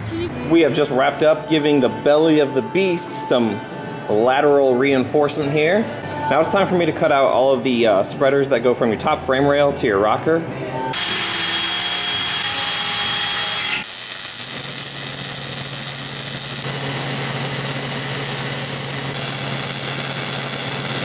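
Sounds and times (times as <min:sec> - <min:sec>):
arc welder crackling: 0:11.0 - 0:21.0
power tool whining: 0:11.0 - 0:21.0.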